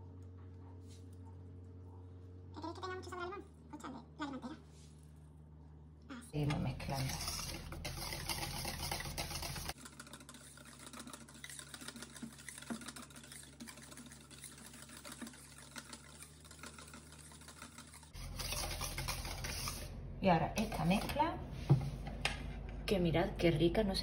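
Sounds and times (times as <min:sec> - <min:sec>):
whisk beating batter in metal bowl: 0:06.4 - 0:19.9.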